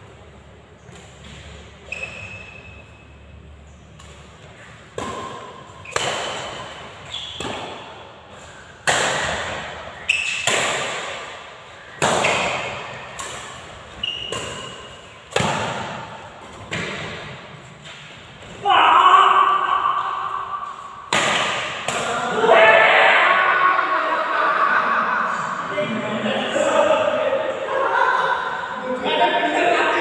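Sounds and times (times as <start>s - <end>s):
shoes squeaking on court: 0.7s - 8.7s, 9.6s - 10.7s, 11.6s - 18.6s
rackets striking a shuttlecock: 3.9s - 17.2s, 20.0s - 22.1s.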